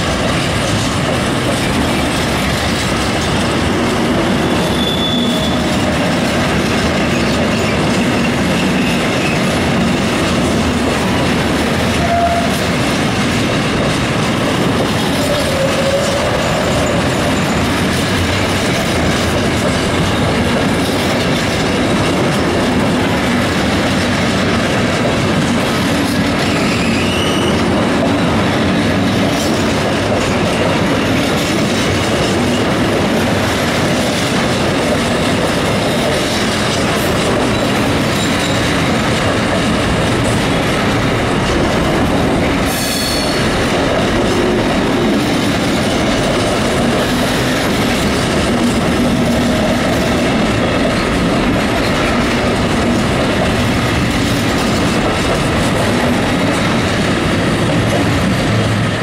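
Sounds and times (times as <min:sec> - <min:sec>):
train wheels rumbling on rails: 0:00.0 - 0:59.0
high wheel squeals: 0:04.5 - 0:05.6, 0:26.4 - 0:27.7.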